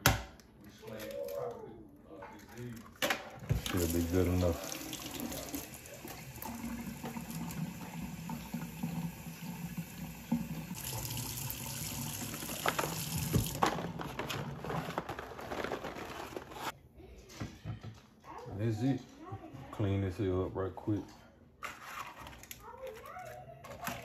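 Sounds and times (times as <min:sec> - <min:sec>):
faucet running into steel sink: 0:03.6 - 0:13.6.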